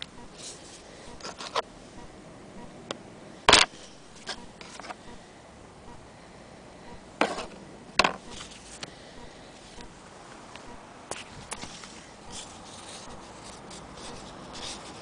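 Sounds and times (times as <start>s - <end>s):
handling knocks and rubs: 11.1s - 15.0s.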